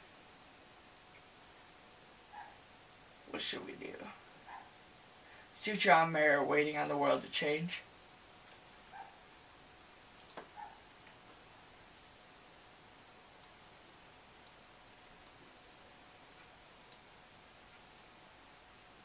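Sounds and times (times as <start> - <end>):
touchpad and mouse clicks: 10.2 - 10.6.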